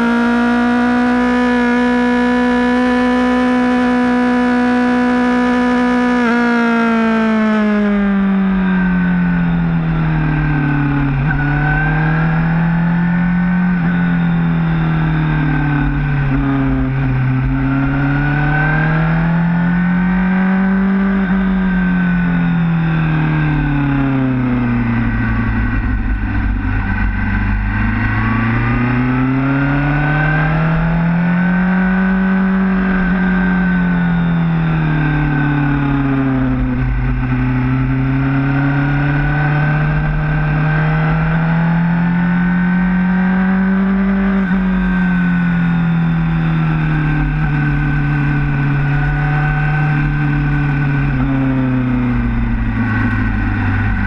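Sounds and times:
motorcycle engine: 0.0s - 54.0s.

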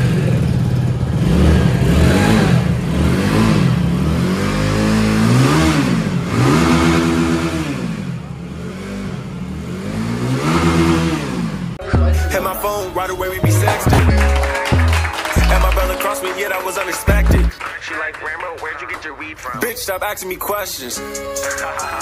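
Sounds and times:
motorcycle engine revving: 0.0s - 11.8s.

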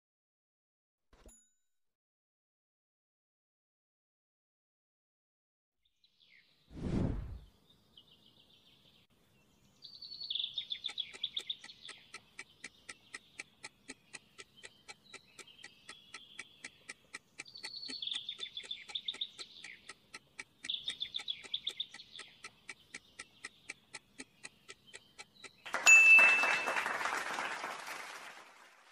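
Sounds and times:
birds chirping in rapid trills: 7.6s - 25.8s
timer ticking: 10.4s - 26.2s.

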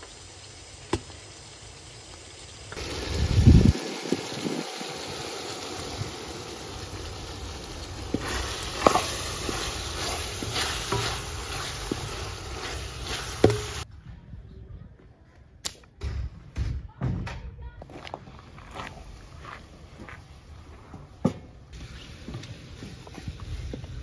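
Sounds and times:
spoon stirring wet filling: 8.1s - 13.8s.

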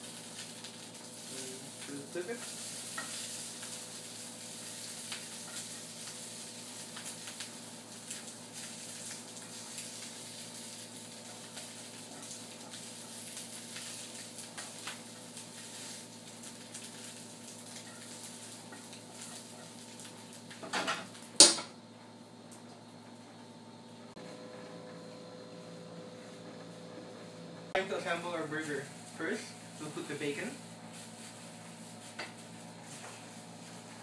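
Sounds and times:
rice patties sizzling in pan: 0.0s - 21.8s, 27.8s - 34.0s.

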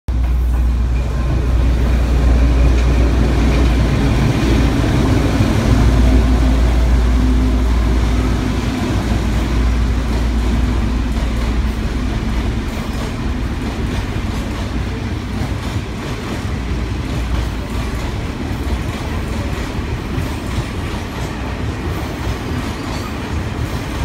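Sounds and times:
locomotive engine drone: 0.1s - 15.6s.

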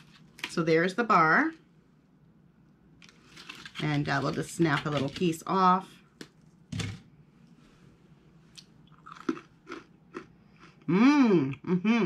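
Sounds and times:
crunchy chewing: 8.6s - 10.8s
person humming mmm: 10.8s - 12.0s.

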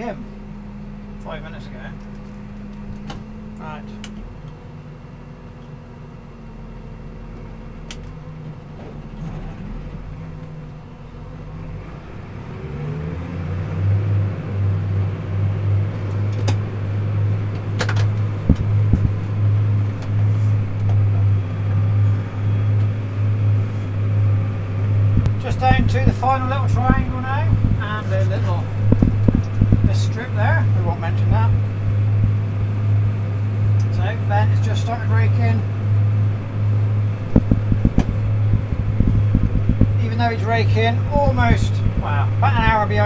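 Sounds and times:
tractor engine revving: 0.0s - 43.0s
sharp clicks in cab: 7.8s - 8.2s, 15.9s - 16.7s, 17.5s - 21.6s.

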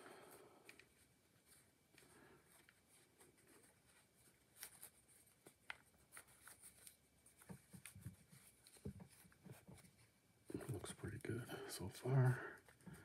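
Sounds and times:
cloth rustling: 0.3s - 11.4s.

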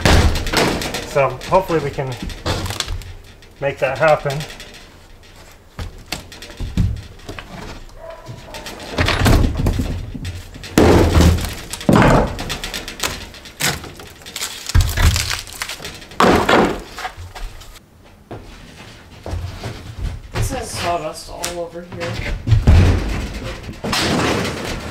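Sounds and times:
wooden board cracking and thumping: 0.0s - 17.8s, 22.0s - 24.9s.

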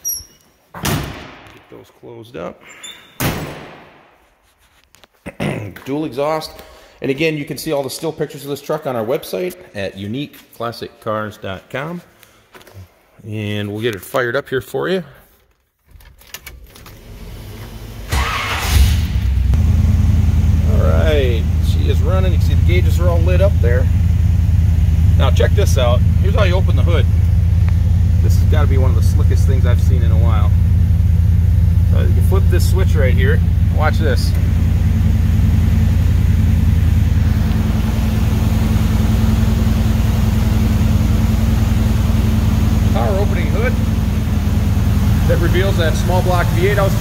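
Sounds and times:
car engine cranking and idling: 16.0s - 47.0s.

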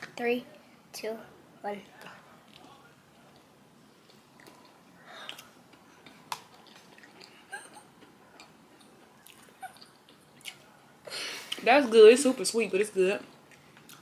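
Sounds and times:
people chewing: 2.0s - 11.6s, 13.2s - 14.0s.

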